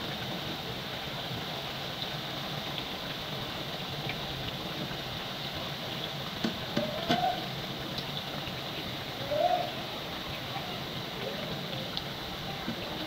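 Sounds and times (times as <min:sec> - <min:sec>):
dough sizzling in hot oil: 0:00.0 - 0:13.0
skimmer knocking metal pot: 0:06.4 - 0:07.4.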